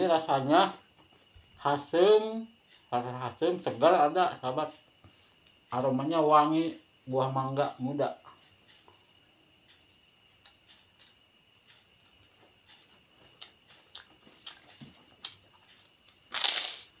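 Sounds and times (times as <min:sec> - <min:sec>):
cracker crackling: 0:14.4 - 0:17.0.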